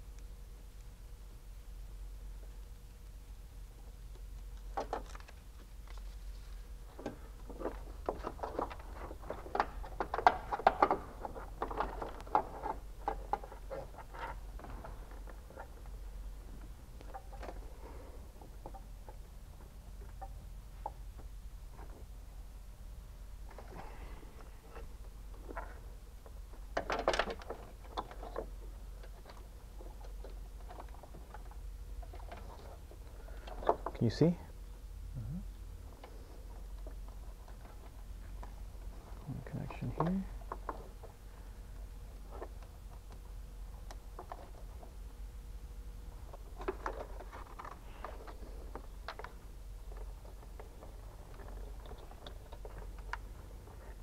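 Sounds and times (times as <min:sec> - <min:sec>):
faint low hum: 0:00.0 - 0:54.0
wiring rustling: 0:02.4 - 0:22.2, 0:45.9 - 0:54.0.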